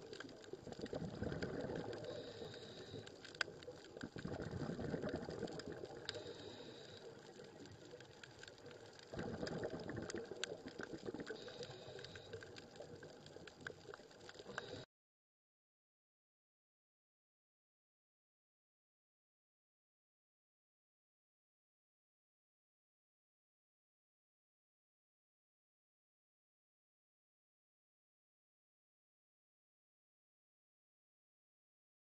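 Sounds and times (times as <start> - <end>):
diver exhaling bubbling rumble: 0.6 - 3.0, 4.0 - 7.8, 9.0 - 12.1.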